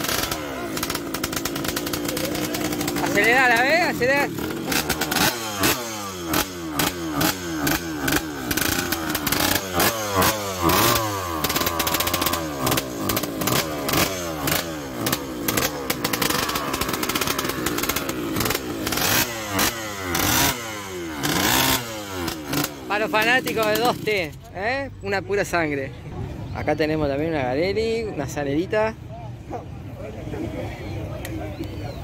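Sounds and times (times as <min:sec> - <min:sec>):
two-stroke motorcycle engine revving: 0:00.0 - 0:24.6.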